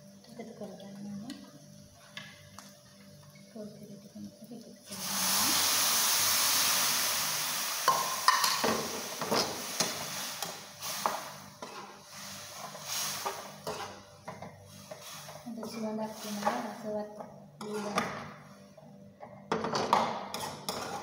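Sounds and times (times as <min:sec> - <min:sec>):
liquid sizzling in hot pan: 0:02.6 - 0:16.9
metal spoon scraping pan: 0:11.6 - 0:12.0, 0:12.7 - 0:14.0, 0:17.6 - 0:18.2, 0:20.3 - 0:21.0.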